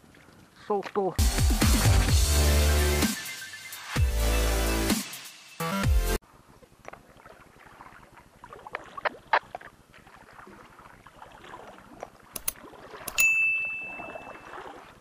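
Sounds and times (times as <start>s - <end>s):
small water splashes: 0.0s - 1.2s, 6.2s - 15.0s
electronic intro music: 1.2s - 6.2s
gear clicking on hull: 11.6s - 13.3s.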